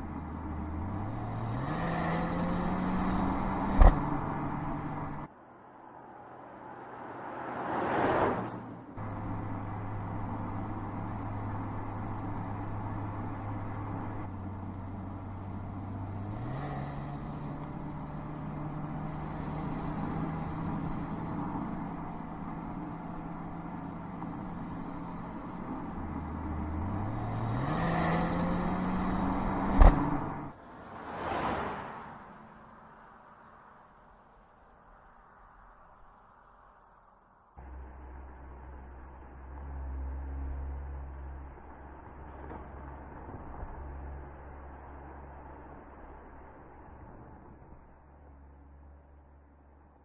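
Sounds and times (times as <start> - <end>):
car engine and exhaust: 0.0 - 50.0
car whooshing past: 6.2 - 8.8, 26.8 - 32.7.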